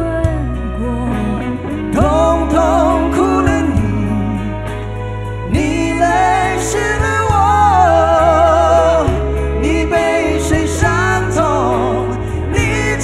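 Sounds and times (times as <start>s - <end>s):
live band: 0.0s - 13.0s
men singing a pop ballad: 0.0s - 13.0s
steady bass: 0.0s - 13.0s.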